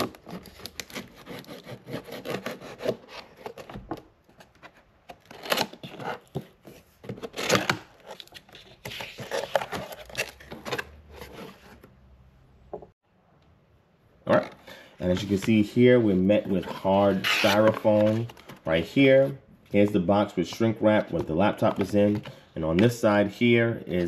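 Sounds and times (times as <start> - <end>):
cardboard scraping and rubbing: 0.0 - 11.9, 14.3 - 19.9
cardboard rustling: 0.0 - 12.0, 14.3 - 23.2.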